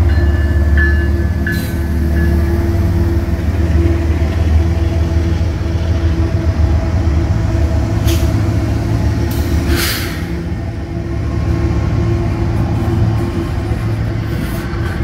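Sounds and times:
diesel locomotive engine droning: 0.0s - 15.0s
short hisses: 9.4s - 10.4s.

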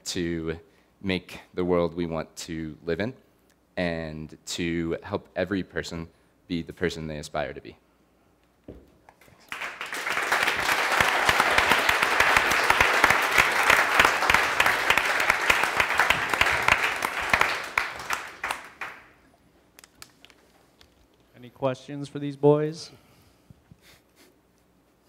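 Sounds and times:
audience applause: 9.4s - 19.1s.

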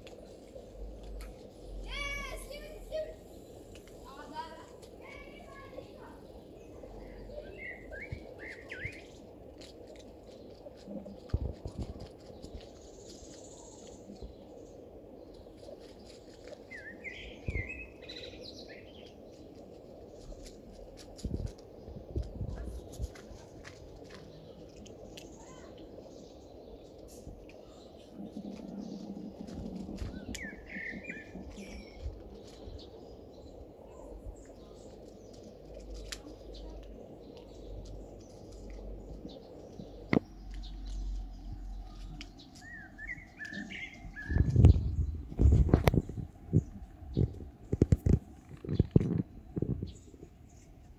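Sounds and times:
small bird chirping: 4.1s - 9.2s, 22.2s - 50.7s
low background rumble: 17.0s - 50.9s.

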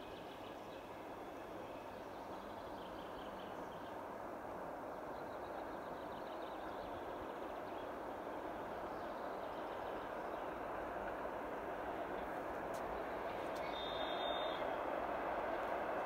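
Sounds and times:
distant train rumble: 0.0s - 16.0s
birds chirping faintly: 12.8s - 14.8s.

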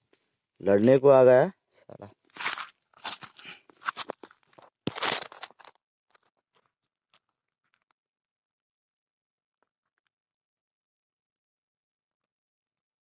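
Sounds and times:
crunching and rustling handling noise: 2.0s - 7.9s.

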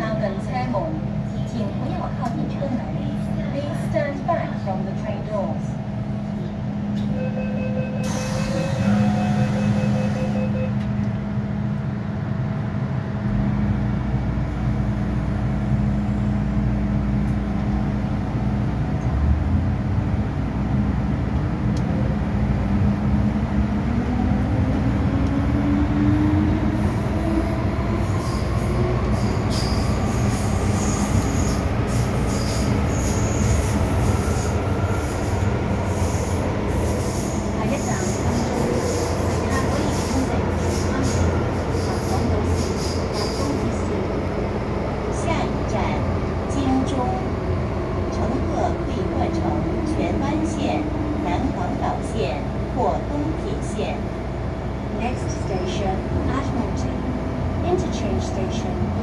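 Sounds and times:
train rumble and hum: 0.0s - 59.0s.

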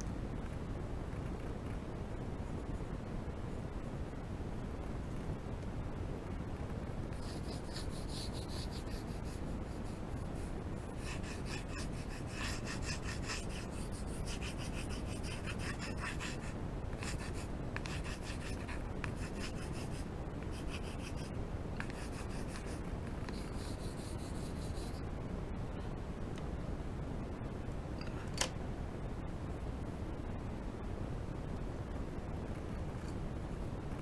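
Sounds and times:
low background hiss: 0.0s - 34.0s
pencil rubbing on paper: 7.2s - 25.0s.

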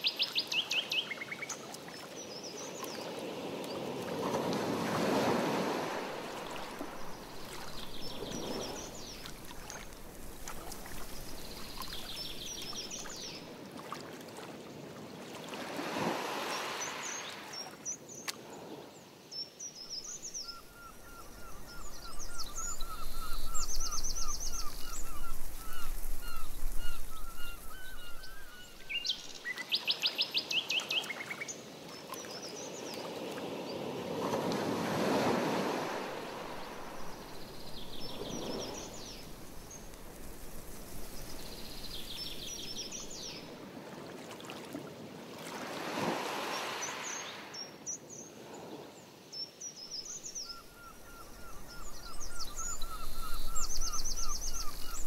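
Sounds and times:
songbirds chirping: 0.0s - 13.6s, 16.3s - 34.0s, 35.0s - 43.6s, 45.8s - 55.0s
canoe paddle swishing through water: 2.7s - 14.6s.

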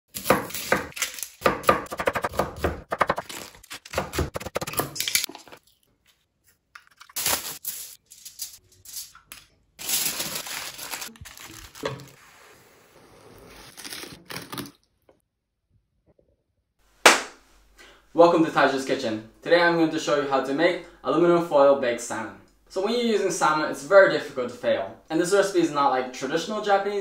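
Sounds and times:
knife chopping on wooden board: 0.2s - 4.9s
aluminium foil crinkling: 0.9s - 1.4s, 6.8s - 12.2s, 13.5s - 14.8s.

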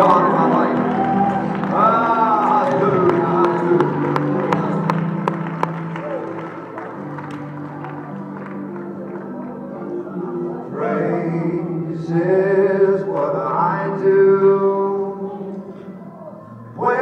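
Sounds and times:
man singing long held notes: 0.0s - 4.9s, 10.5s - 17.0s
musical backing: 0.0s - 17.0s.

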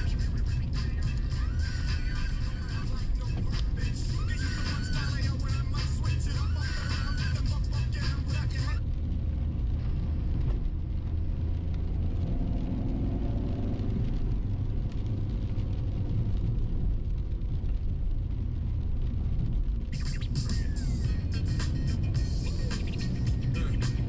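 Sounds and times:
car engine rumble: 0.0s - 24.0s
tyres on wet road: 0.0s - 24.0s.

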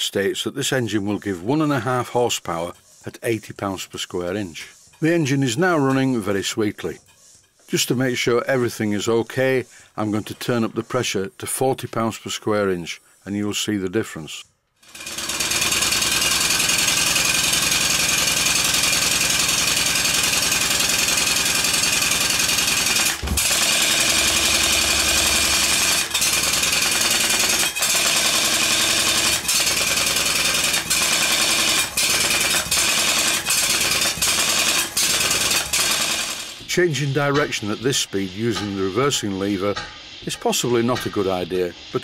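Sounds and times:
model steam engine chattering hiss: 15.0s - 42.0s.

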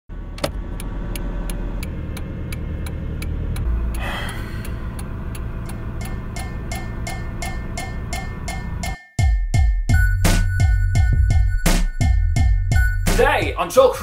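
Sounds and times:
car engine rumble: 0.1s - 9.0s
car turn signal clicking: 0.4s - 9.0s.

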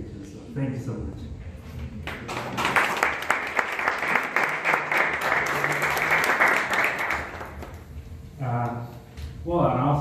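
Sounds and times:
audience applauding: 2.0s - 7.8s.

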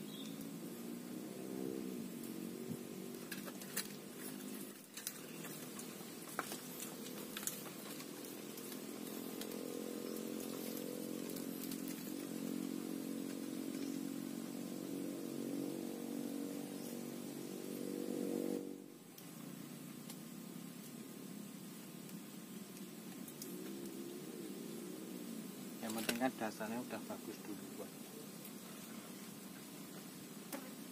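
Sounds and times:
small engine running: 6.5s - 18.7s.

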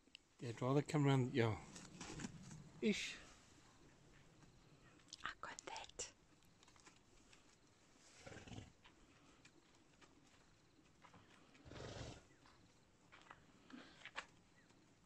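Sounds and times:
zebra snorting: 8.1s - 8.8s, 11.6s - 12.3s.

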